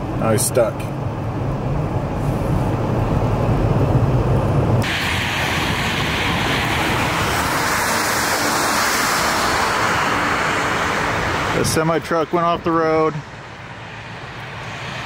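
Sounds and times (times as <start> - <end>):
highway traffic: 0.0 - 15.0
wind hissing: 4.5 - 12.0.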